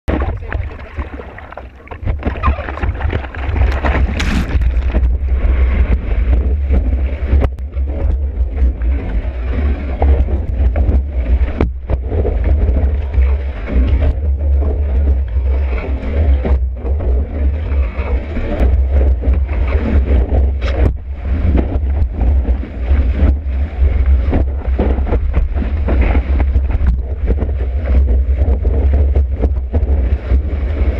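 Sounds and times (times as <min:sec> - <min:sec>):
breaking wave: 0:00.1 - 0:05.8
seawater splashing and rushing: 0:00.1 - 0:30.9
wind buffeting microphone: 0:00.1 - 0:30.9.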